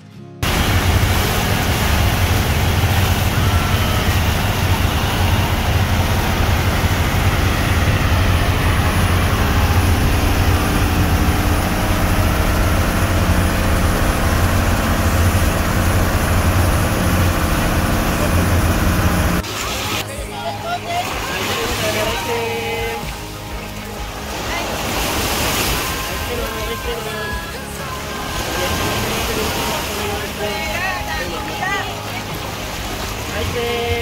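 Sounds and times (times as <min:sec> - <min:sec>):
boat engine droning: 0:00.4 - 0:34.0
wind and water spray: 0:00.4 - 0:34.0.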